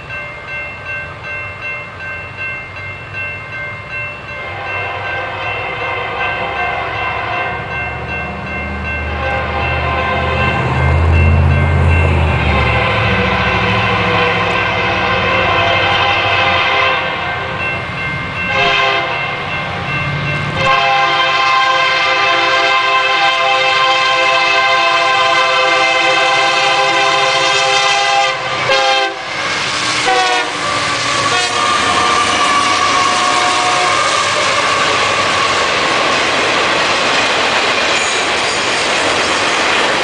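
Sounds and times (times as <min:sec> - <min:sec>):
train rumble: 0:00.0 - 0:40.0
locomotive air horn blasts: 0:04.4 - 0:07.7, 0:09.1 - 0:10.5, 0:12.4 - 0:17.5, 0:18.5 - 0:19.4, 0:20.6 - 0:35.6.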